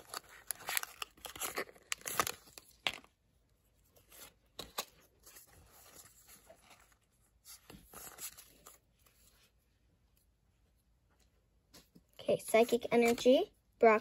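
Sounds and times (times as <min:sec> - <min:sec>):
foil wrapper crinkling: 0:00.0 - 0:03.0
cards rustling and slipping: 0:00.0 - 0:03.2.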